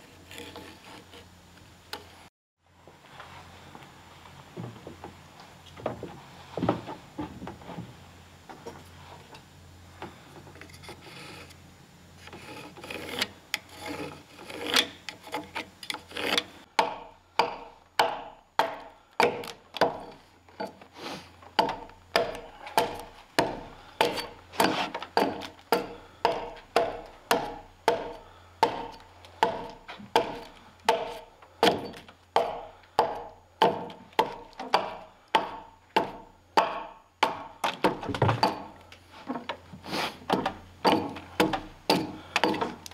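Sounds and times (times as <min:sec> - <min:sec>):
scraping on wood: 0:00.0 - 0:01.3, 0:10.0 - 0:11.6, 0:12.2 - 0:16.6, 0:19.4 - 0:32.6
axe chopping log: 0:16.8 - 0:20.2, 0:21.6 - 0:38.8, 0:40.2 - 0:42.9.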